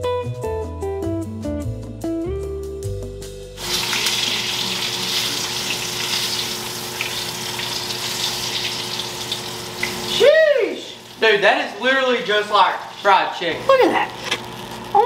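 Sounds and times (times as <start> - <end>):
meat sizzling in oil: 3.4 - 15.0.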